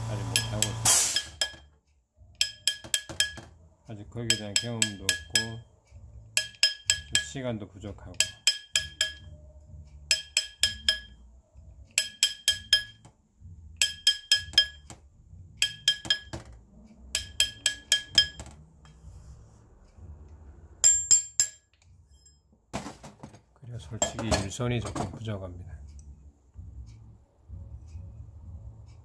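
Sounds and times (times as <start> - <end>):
hammer tapping metal ring: 0.2 - 1.8, 2.4 - 3.6, 4.2 - 5.7, 6.3 - 19.0, 20.8 - 22.4.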